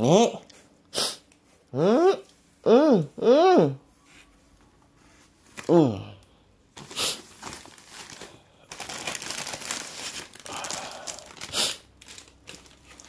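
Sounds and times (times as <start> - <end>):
plastic bags crinkling: 6.7 - 13.0.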